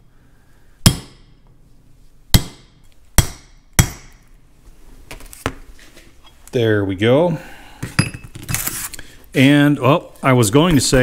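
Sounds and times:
hammer striking steel punch: 0.8 - 1.4, 2.3 - 4.3.

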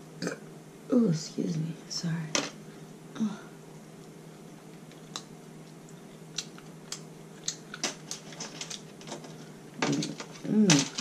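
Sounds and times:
crab shell cracking by hand: 4.8 - 9.2.

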